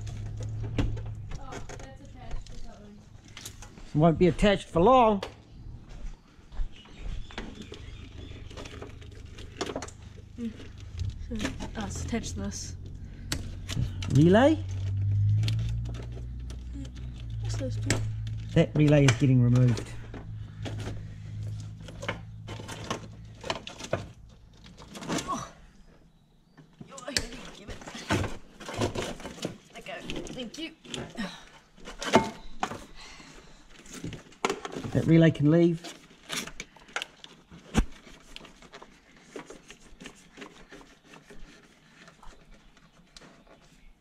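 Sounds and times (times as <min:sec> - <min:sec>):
plastic parts clicking and rustling: 0:07.3 - 0:12.2, 0:12.8 - 0:25.6, 0:26.6 - 0:44.0
steady low hum: 0:09.0 - 0:24.9.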